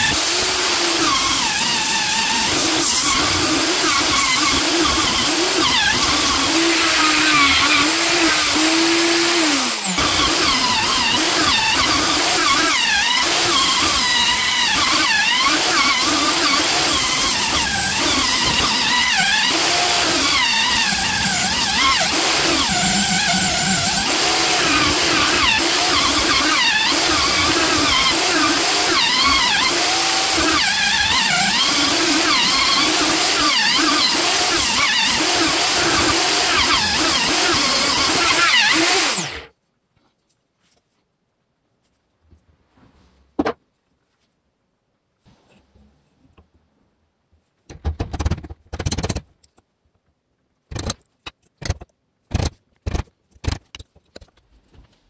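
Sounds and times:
power tool cutting wood: 0:00.0 - 0:39.5.

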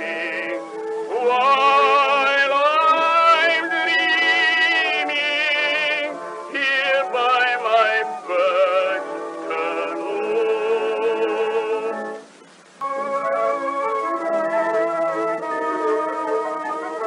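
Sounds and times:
singer with wide vibrato: 0:00.0 - 0:12.4
small orchestra playing: 0:00.0 - 0:17.0.

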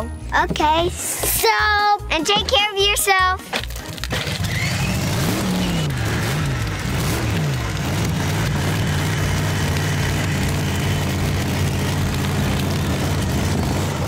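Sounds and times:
toy truck engine sound: 0:03.7 - 0:14.0.

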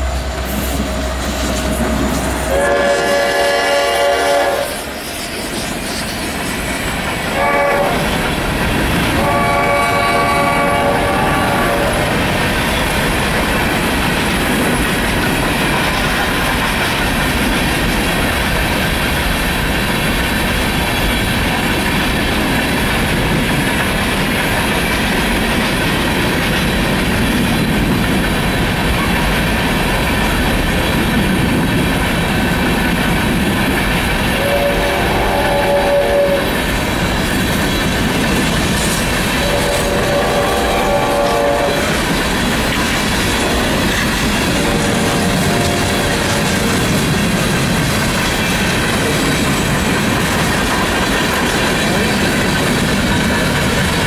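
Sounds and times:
train rumble and wheel clatter: 0:00.0 - 0:54.0
locomotive horn blasts: 0:02.3 - 0:04.9, 0:07.3 - 0:08.1, 0:09.2 - 0:12.3, 0:34.3 - 0:36.6, 0:39.3 - 0:42.0, 0:43.3 - 0:46.6.

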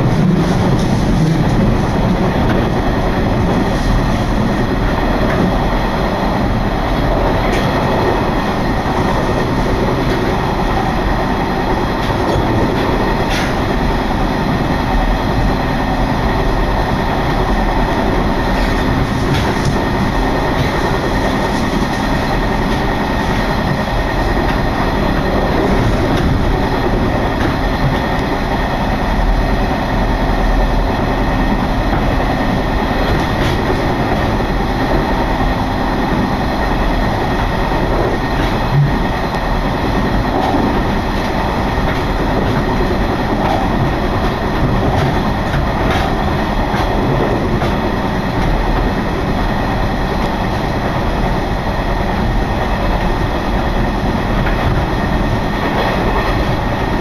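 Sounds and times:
train wheel and rail noise: 0:00.0 - 0:57.0
wheels clicking over rail joints: 0:36.1 - 0:57.0.

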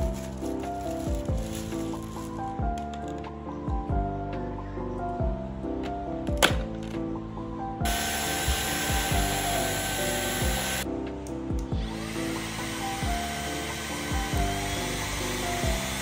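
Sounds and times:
handheld vacuum cleaner motor: 0:00.0 - 0:02.4, 0:07.9 - 0:10.8, 0:11.8 - 0:16.0
background music with steady beat: 0:00.0 - 0:16.0.

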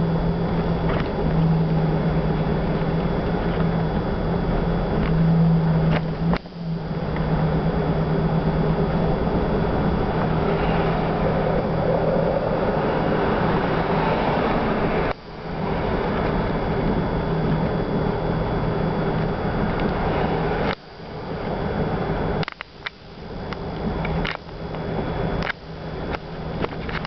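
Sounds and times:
road noise rushing: 0:00.0 - 0:22.4
vehicle engine hum: 0:00.0 - 0:27.0
sharp click: 0:22.4 - 0:23.0.

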